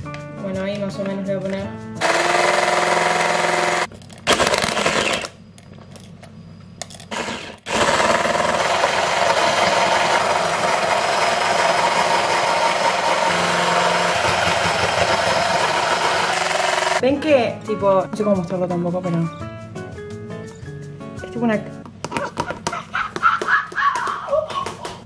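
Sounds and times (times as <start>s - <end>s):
electric hand mixer whining: 2.0s - 5.3s, 7.1s - 17.0s.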